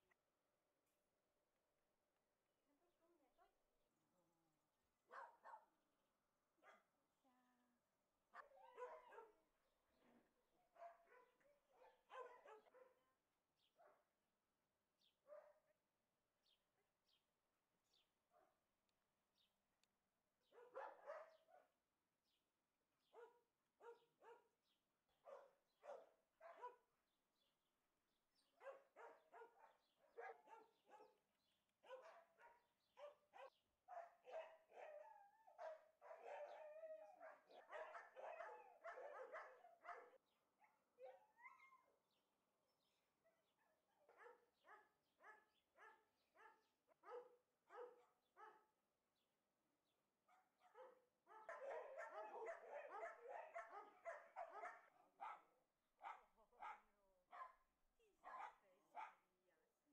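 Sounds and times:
dog barking: 5.1s - 5.7s, 8.4s - 9.4s, 10.8s - 13.0s, 20.5s - 21.8s, 23.1s - 24.5s, 25.2s - 26.8s, 28.6s - 31.2s, 31.8s - 41.8s, 44.1s - 48.7s, 50.3s - 57.6s, 58.2s - 59.3s.

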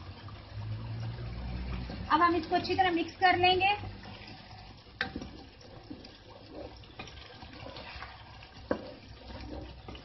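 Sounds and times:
gravy sizzling: 0.0s - 10.0s
spatula stirring and scraping: 3.9s - 10.0s.

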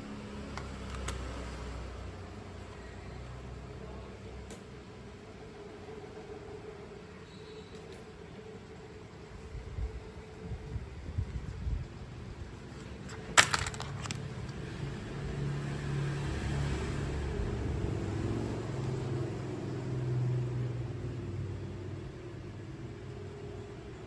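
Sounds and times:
phones knocking together: 13.1s - 14.3s.

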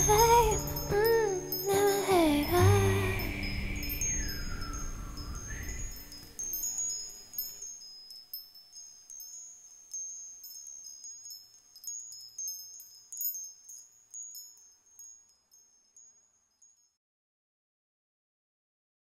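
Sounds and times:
low music bed: 0.0s - 8.2s
high tinkling chimes: 0.0s - 17.0s.

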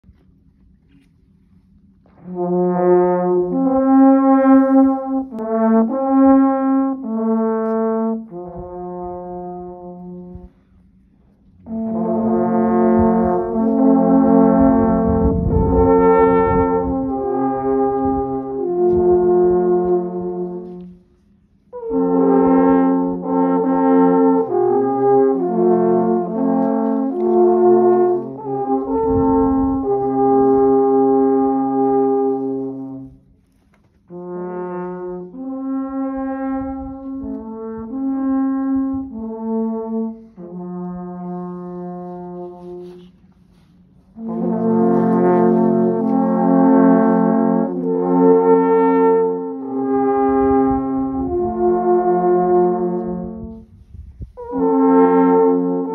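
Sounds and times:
alphorns playing in harmony: 11.6s - 21.0s, 21.8s - 33.2s, 44.0s - 53.5s, 54.4s - 55.9s.

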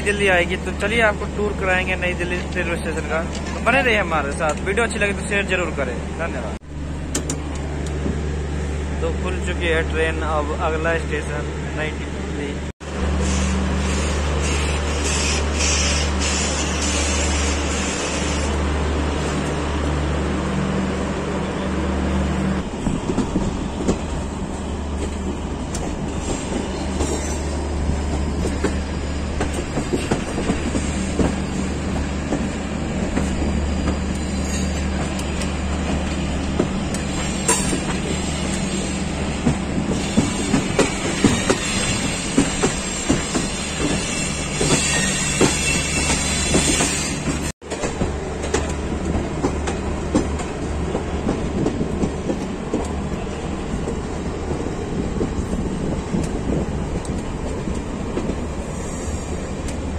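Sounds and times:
train low hum: 0.0s - 59.9s
train wheels clattering on rails: 22.6s - 59.9s.

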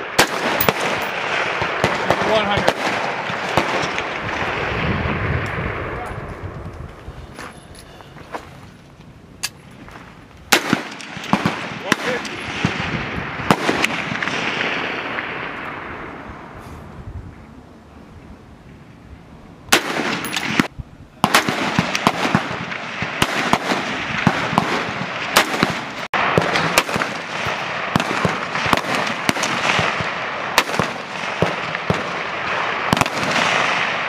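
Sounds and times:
rifle single shots: 0.0s - 4.8s, 10.5s - 16.1s, 19.7s - 34.0s
overlapping distant gunshots echoing: 0.0s - 6.0s, 10.5s - 16.5s, 19.7s - 34.0s.

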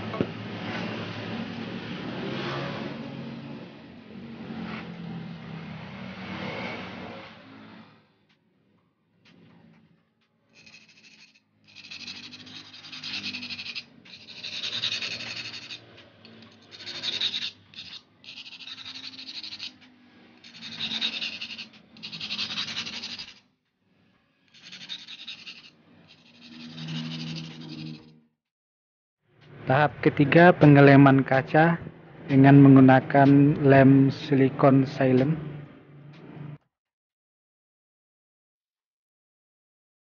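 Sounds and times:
glass rasping on abrasive stone: 10.6s - 23.4s, 24.5s - 28.1s.

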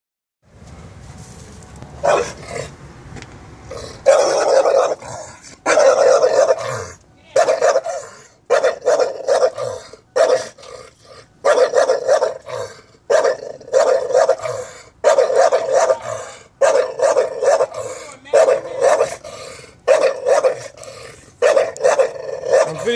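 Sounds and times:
dog barking: 2.0s - 2.4s, 4.0s - 5.0s, 5.7s - 6.8s, 7.4s - 10.6s, 11.4s - 19.2s, 19.9s - 20.7s, 21.4s - 22.9s.

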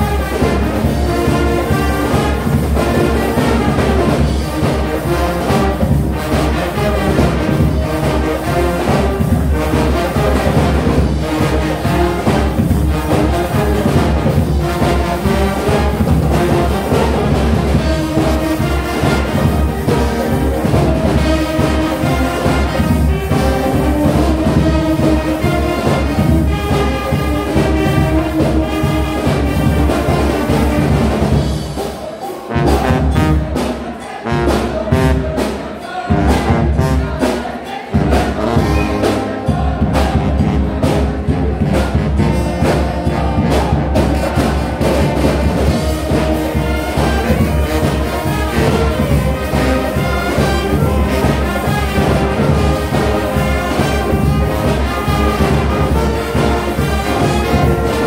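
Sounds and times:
brass band playing: 0.0s - 58.0s.

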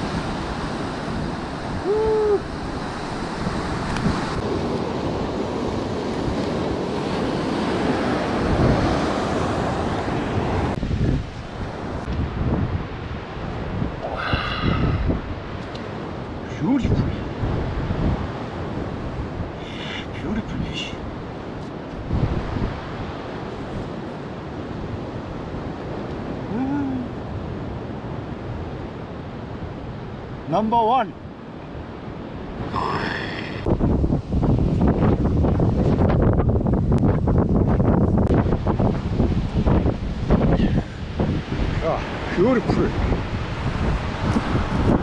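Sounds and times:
wind buffeting microphone: 0.0s - 19.6s, 20.3s - 30.5s, 31.2s - 45.0s
ocean surf on rocks: 0.0s - 45.0s
brief wordless voice: 26.5s - 27.2s.

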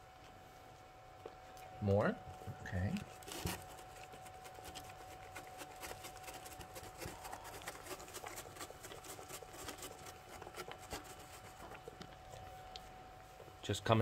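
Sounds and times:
goat chewing hay: 3.0s - 13.6s.

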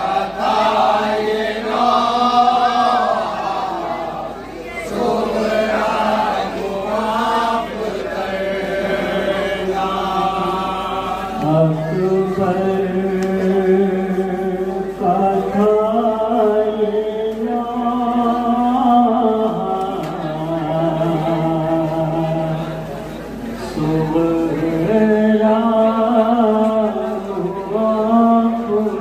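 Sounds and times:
men chanting: 0.0s - 22.8s
man singing into a microphone: 10.0s - 22.9s, 23.6s - 29.0s.

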